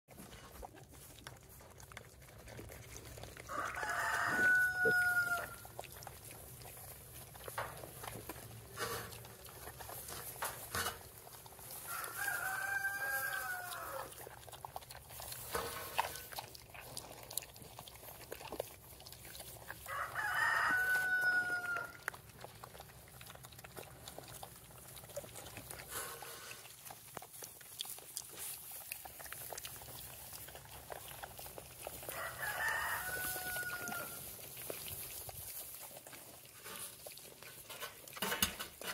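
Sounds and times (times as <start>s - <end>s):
rooster crowing: 3.5s - 5.6s, 11.8s - 14.1s, 19.8s - 22.0s, 32.1s - 34.2s.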